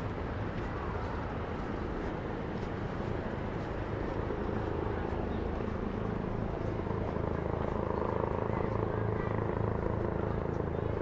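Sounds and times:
passing traffic: 0:00.0 - 0:11.0
faint voices of people: 0:03.0 - 0:11.0.

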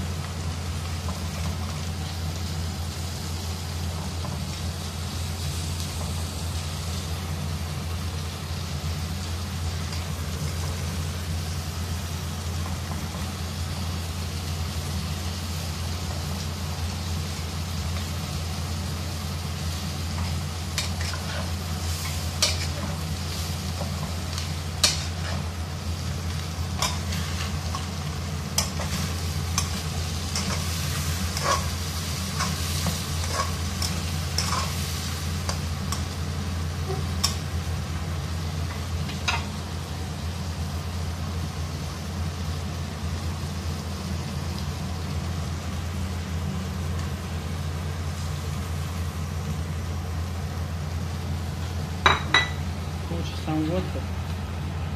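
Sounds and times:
frying sizzle: 0:00.0 - 0:54.9
steady low hum: 0:00.0 - 0:54.9
spatula scraping wok: 0:17.6 - 0:37.7.

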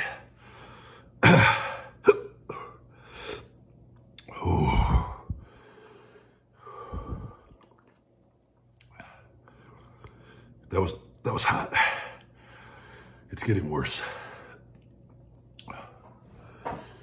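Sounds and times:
man groaning in pain: 0:04.3 - 0:05.2
man gasping and breathing hard: 0:04.3 - 0:07.5.

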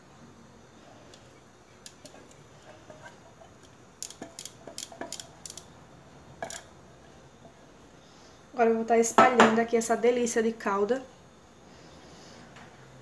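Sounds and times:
spatula scraping saucepan: 0:02.0 - 0:03.6.

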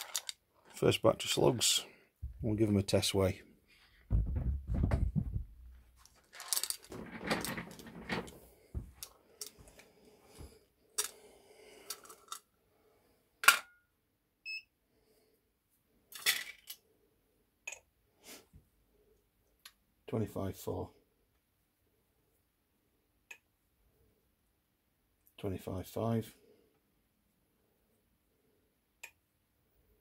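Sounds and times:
metal slugs clinking in a tin: 0:00.0 - 0:00.3, 0:06.2 - 0:07.0.

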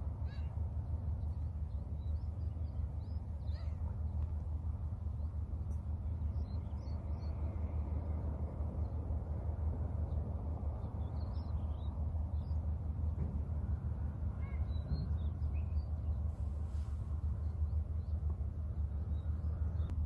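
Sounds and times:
low outdoor rumble: 0:00.0 - 0:20.0
faint bird chirps: 0:00.2 - 0:00.6, 0:01.2 - 0:04.3, 0:14.3 - 0:18.2.

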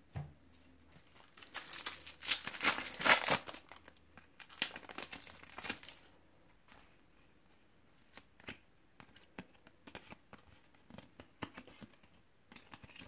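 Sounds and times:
foil wrapper crinkling and tearing: 0:01.0 - 0:06.1.

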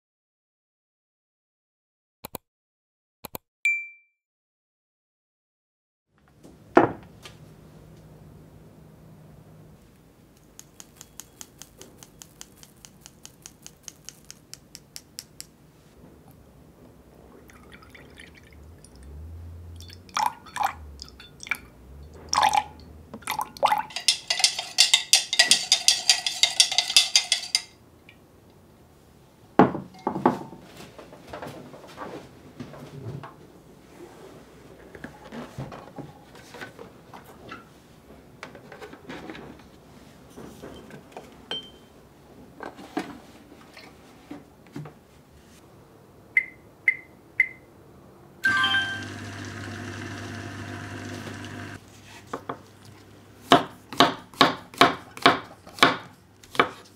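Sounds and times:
milk poured into a jug: 0:17.4 - 0:19.0.

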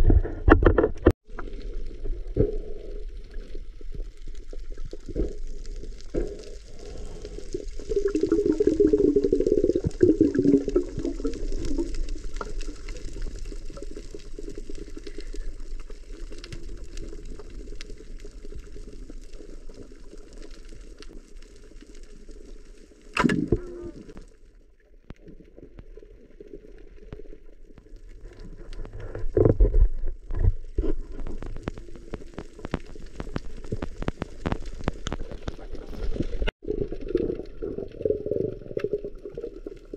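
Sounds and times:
underwater rushing and bubbling: 0:00.0 - 0:39.9
faint underwater clicks: 0:25.0 - 0:39.9.

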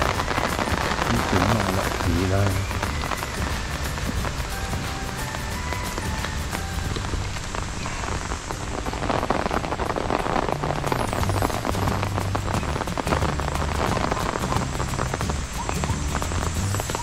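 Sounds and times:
rain pattering on umbrella: 0:00.0 - 0:17.0.

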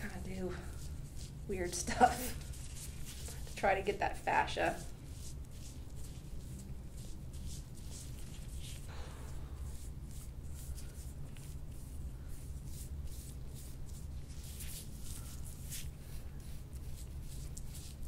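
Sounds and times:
fingertips scratching through hair: 0:00.0 - 0:18.0
steady low hum: 0:00.0 - 0:18.0.

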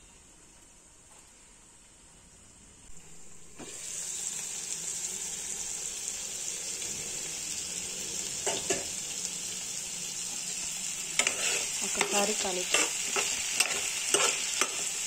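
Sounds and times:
vegetables sizzling in hot oil: 0:03.0 - 0:15.0.

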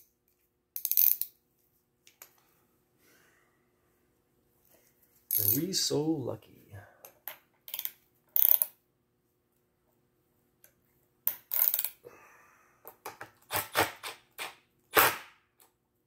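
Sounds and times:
ratchet wrench clicking: 0:00.8 - 0:01.3, 0:07.7 - 0:08.7, 0:11.3 - 0:12.0.

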